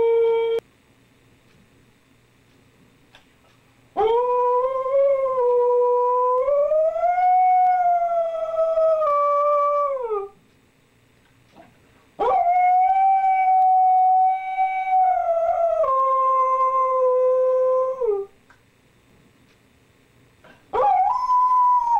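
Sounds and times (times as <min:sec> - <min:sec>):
husky howling: 0:04.0 - 0:10.4, 0:12.2 - 0:18.3, 0:20.8 - 0:21.9.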